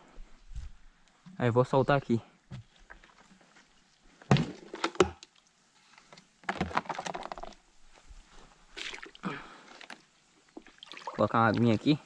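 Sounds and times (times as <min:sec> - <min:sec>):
plastic bucket thunking on rocks: 0:04.2 - 0:05.2, 0:06.4 - 0:07.6.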